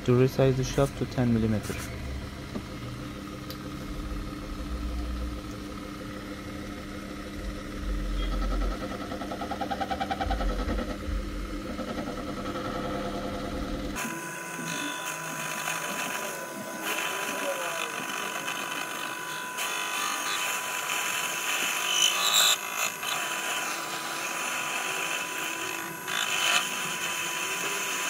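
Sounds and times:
mini lathe motor hum: 0.0 - 28.0.

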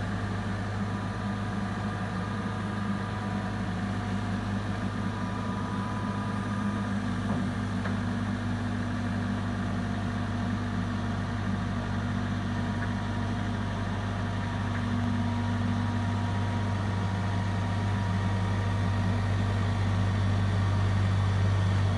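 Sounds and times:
diesel engine running at low revs: 0.0 - 21.9.

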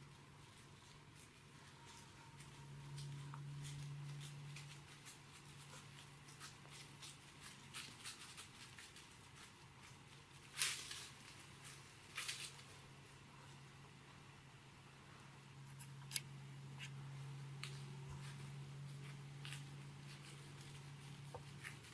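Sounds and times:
faint low hum: 0.0 - 21.9
deer walking through dry leaves: 0.3 - 12.9, 17.6 - 21.9.

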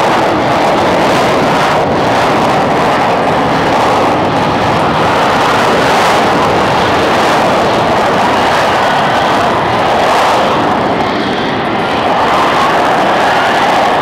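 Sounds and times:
military jet noise: 0.0 - 14.0.

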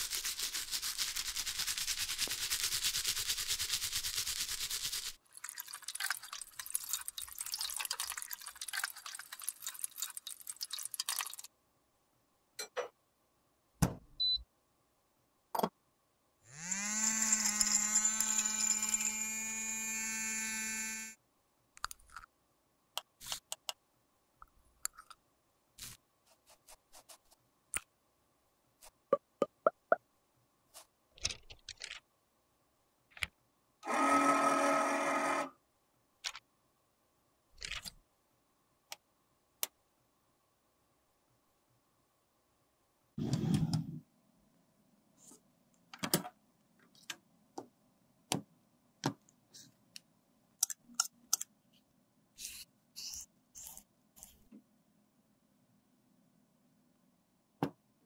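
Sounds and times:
electric grinder whining: 16.5 - 21.1.

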